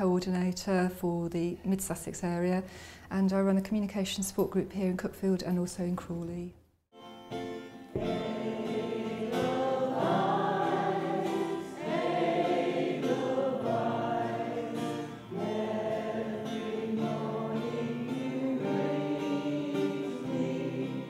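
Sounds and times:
choir singing in unison: 0:08.0 - 0:21.0.

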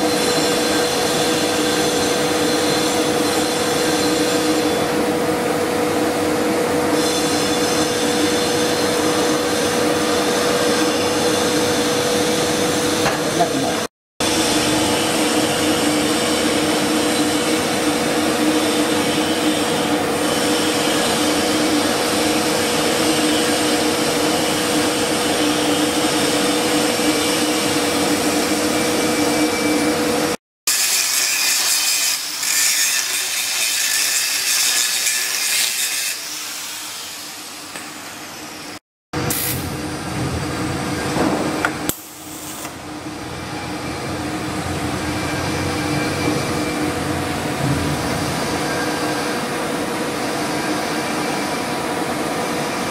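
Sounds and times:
welding hiss and hum: 0:06.9 - 0:38.2, 0:39.2 - 0:40.8, 0:41.6 - 0:43.0
angle grinder cutting pipe: 0:30.7 - 0:38.0.

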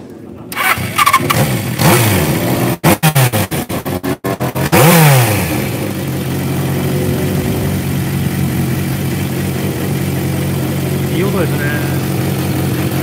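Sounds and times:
motorcycle engine revving and idling: 0:00.5 - 0:13.0.

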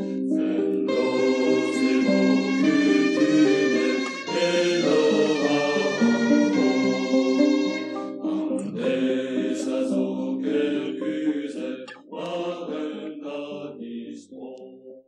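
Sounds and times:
voices singing a chant-like song: 0:00.0 - 0:15.0.

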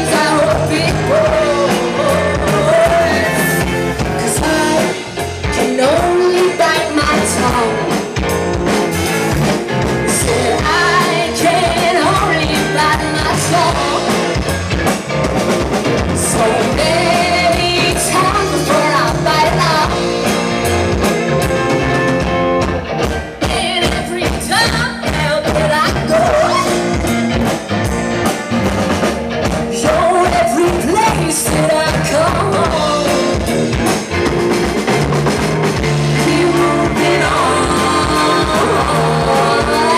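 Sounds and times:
person singing: 0:00.0 - 0:08.0, 0:10.1 - 0:14.3, 0:16.2 - 0:20.1, 0:29.7 - 0:33.4, 0:35.9 - 0:39.9
bass guitar: 0:00.0 - 0:39.9
drum kit: 0:00.0 - 0:39.9
electric guitar: 0:00.0 - 0:39.9.

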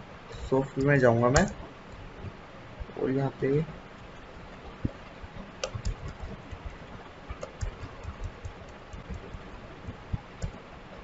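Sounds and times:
faint steady hiss: 0:00.0 - 0:11.0
keyboard keys clicking: 0:05.6 - 0:09.5.

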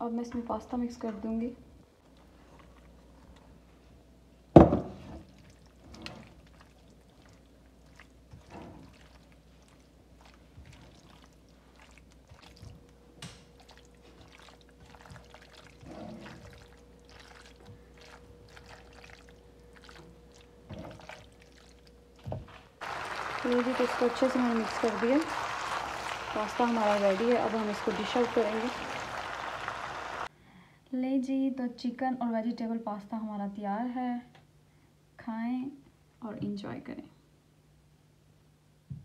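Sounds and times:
loud knock on pan: 0:04.6 - 0:04.9
spatula stirring in pan: 0:05.2 - 0:12.9, 0:13.5 - 0:21.8.

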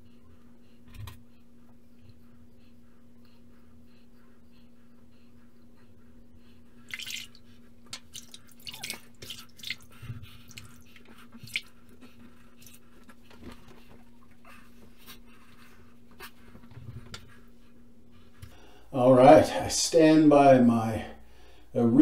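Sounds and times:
water splashing at sink: 0:06.9 - 0:11.7.

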